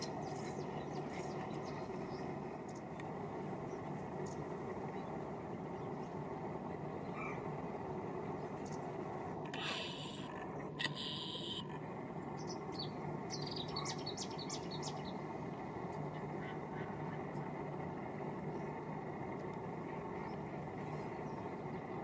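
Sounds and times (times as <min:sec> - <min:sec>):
low background rumble: 0:00.0 - 0:22.0
small bird chirping: 0:09.5 - 0:11.7.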